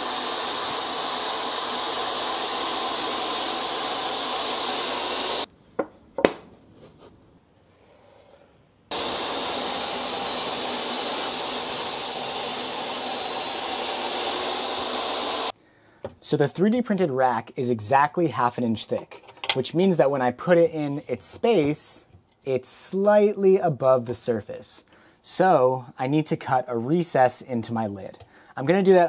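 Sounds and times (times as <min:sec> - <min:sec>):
table saw whining: 0:00.0 - 0:05.5, 0:08.9 - 0:15.5
wooden knocks: 0:05.8 - 0:06.5.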